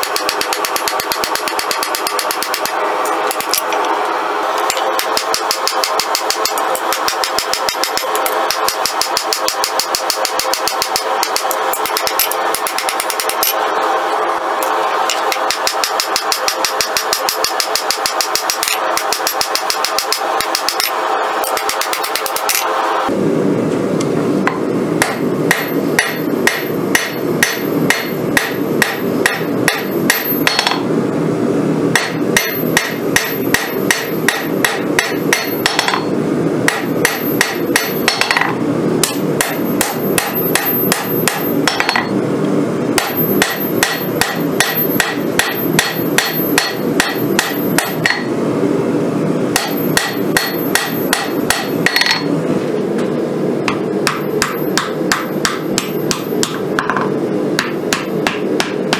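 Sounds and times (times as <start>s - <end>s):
hammer striking steel on anvil: 0.0s - 3.8s, 4.6s - 13.6s, 15.1s - 22.7s, 24.5s - 30.9s, 31.9s - 36.1s, 36.7s - 42.1s, 43.0s - 48.3s, 49.6s - 52.3s, 53.7s - 58.9s
steady low rush: 22.7s - 47.0s.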